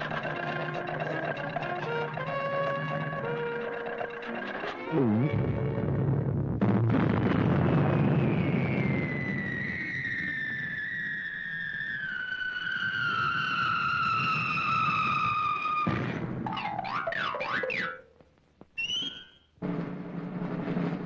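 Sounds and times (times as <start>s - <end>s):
cannon blast rumble: 6.1s - 9.4s
long falling whistle: 7.9s - 15.8s, 18.8s - 19.4s.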